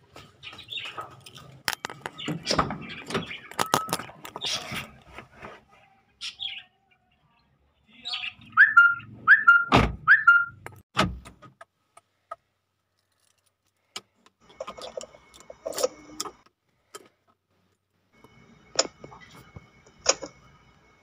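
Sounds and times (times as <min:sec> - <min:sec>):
bird chirping: 0:01.8 - 0:04.8, 0:06.2 - 0:10.6.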